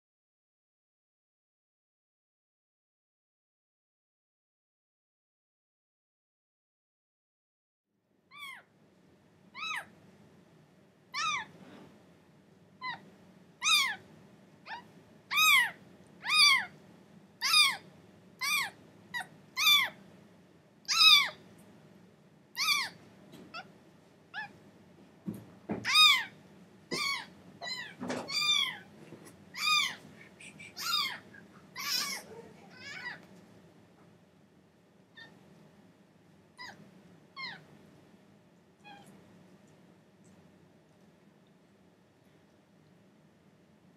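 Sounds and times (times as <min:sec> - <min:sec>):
kitten meowing: 0:08.3 - 0:08.7, 0:09.6 - 0:09.9, 0:11.1 - 0:11.5, 0:12.8 - 0:13.0, 0:13.6 - 0:14.0, 0:14.7 - 0:16.7, 0:17.4 - 0:17.8, 0:18.4 - 0:20.0, 0:20.9 - 0:21.4, 0:22.6 - 0:23.7, 0:25.8 - 0:28.9, 0:29.5 - 0:33.2, 0:35.2 - 0:35.4, 0:36.6 - 0:36.8, 0:37.4 - 0:37.7, 0:38.8 - 0:39.2.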